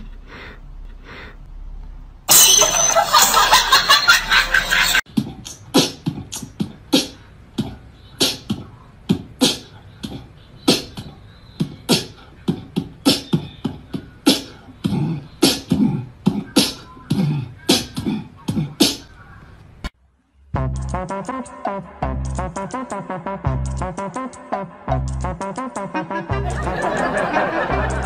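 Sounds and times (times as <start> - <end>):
beatboxing: 5.1 - 19.3, 20.6 - 28.0.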